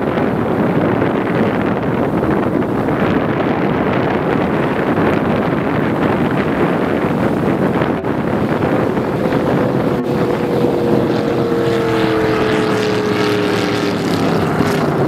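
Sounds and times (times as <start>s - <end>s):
powerboat engines racing: 0.0s - 15.0s
wind noise on microphone: 0.0s - 15.0s.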